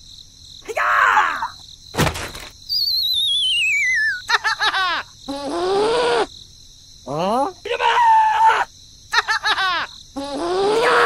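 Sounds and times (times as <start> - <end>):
wavering whistle falling in pitch: 2.7 - 4.2.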